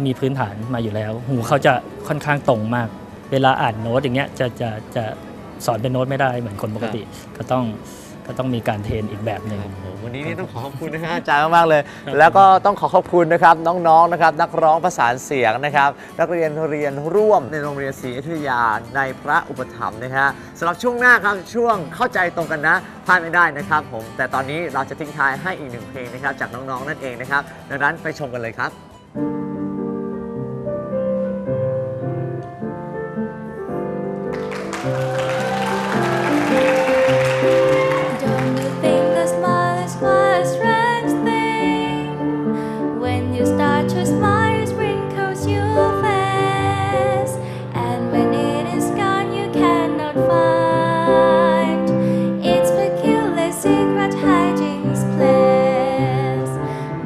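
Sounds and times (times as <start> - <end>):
slow piano chords: 29.0 - 57.0
girl singing: 38.2 - 42.3, 43.0 - 56.6.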